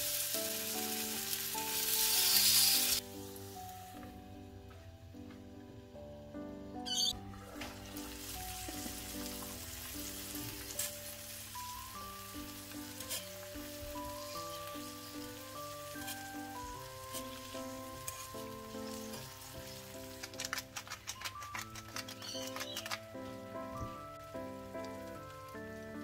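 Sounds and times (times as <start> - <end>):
potato slices sizzling in oil: 0.0 - 4.2, 7.9 - 23.0
light background music: 0.0 - 26.0
salt clicks: 19.6 - 23.3.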